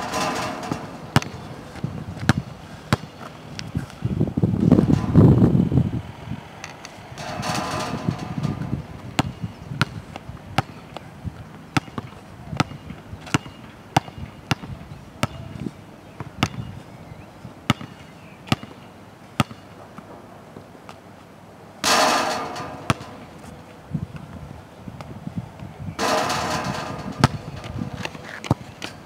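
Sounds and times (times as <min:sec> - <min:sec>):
basketball bouncing on court: 0:00.0 - 0:03.7, 0:06.6 - 0:11.0, 0:11.7 - 0:15.5, 0:17.7 - 0:18.8, 0:19.4 - 0:19.7, 0:21.8 - 0:23.4, 0:26.0 - 0:29.0.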